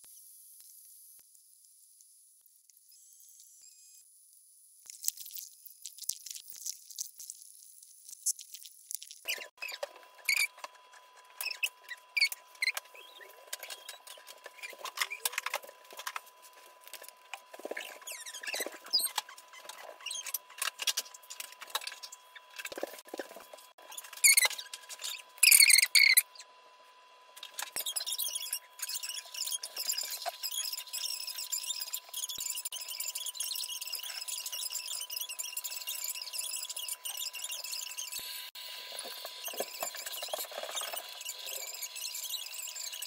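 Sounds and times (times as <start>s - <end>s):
marker squeaking on paper: 8.2s - 16.2s, 17.6s - 23.0s, 23.8s - 26.4s, 27.5s - 38.3s, 39.0s - 43.0s.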